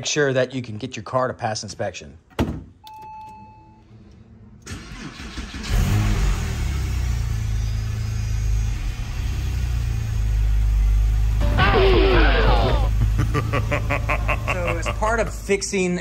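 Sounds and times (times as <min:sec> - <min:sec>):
car engine cranking and running: 0:04.6 - 0:15.6.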